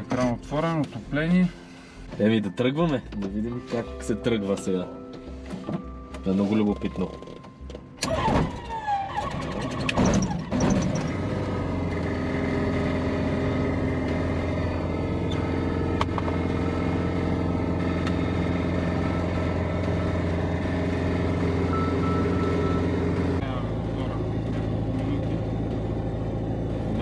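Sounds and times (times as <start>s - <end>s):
aircraft engine starting and idling: 7.2s - 27.0s.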